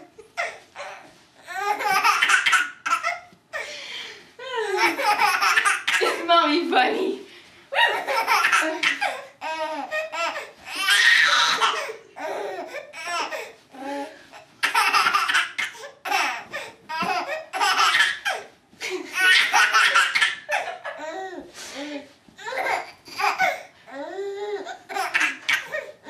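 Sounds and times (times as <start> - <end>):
baby laughing: 0.0 - 3.3, 4.7 - 6.3, 7.8 - 13.5, 14.6 - 18.5, 19.1 - 21.5, 22.4 - 23.7, 24.6 - 26.0.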